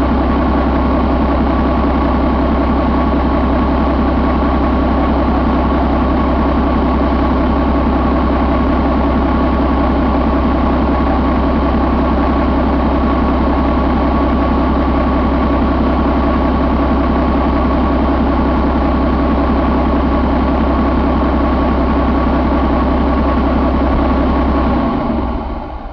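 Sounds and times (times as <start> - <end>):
diesel engine idling: 0.0 - 25.9.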